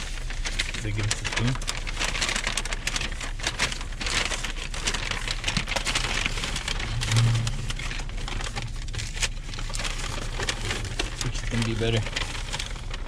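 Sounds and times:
paper bag and wrappers rustling: 0.0s - 13.0s.

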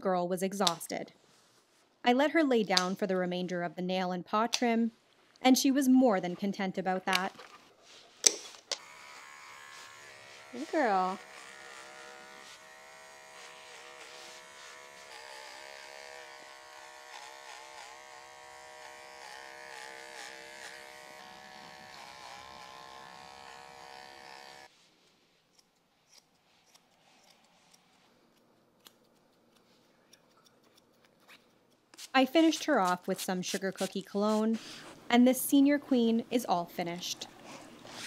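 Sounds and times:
pet clipper electric hum: 8.7s - 24.7s.

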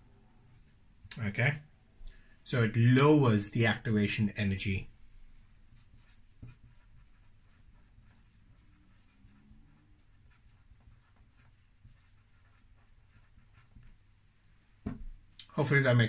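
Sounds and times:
marker scratching on paper: 5.7s - 14.0s.

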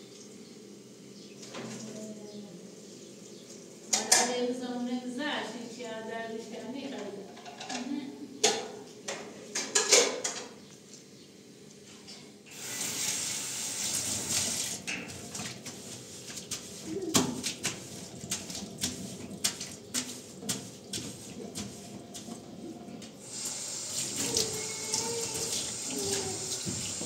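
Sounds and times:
water running into steel sink: 12.5s - 27.0s
sponge scrubbing steel sink: 12.6s - 27.0s.

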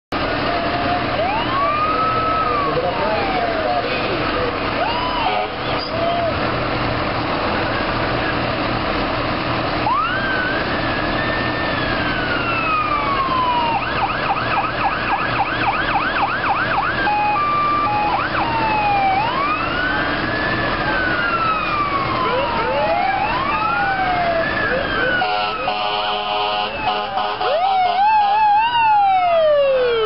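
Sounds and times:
fire truck siren: 0.1s - 30.0s
truck engine hum: 0.1s - 30.0s
second siren: 0.5s - 3.9s, 4.7s - 6.4s, 9.8s - 30.0s.

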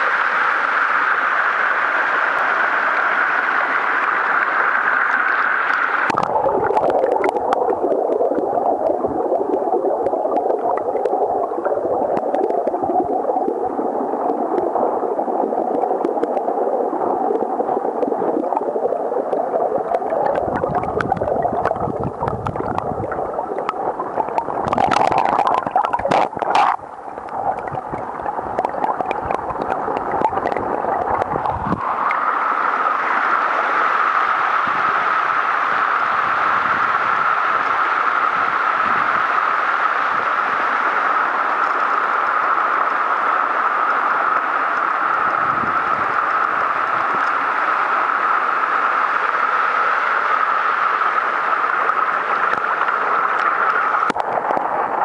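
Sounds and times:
waterfall splashing: 0.0s - 36.0s
muffled underwater gurgling rush: 0.0s - 55.0s.

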